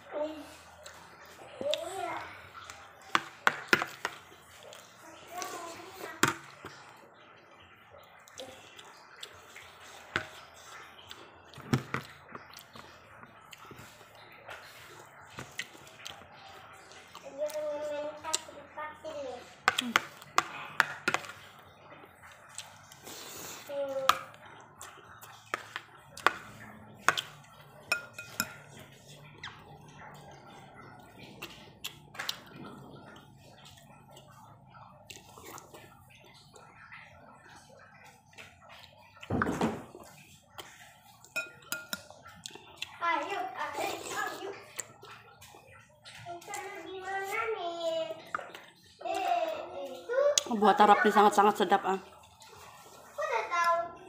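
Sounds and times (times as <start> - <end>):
wet chewing clicks and smacks: 8.0 - 18.6, 19.6 - 39.3, 39.9 - 47.4, 48.1 - 53.8
metal spoon clinking on plate: 27.9 - 28.7, 41.3 - 42.1.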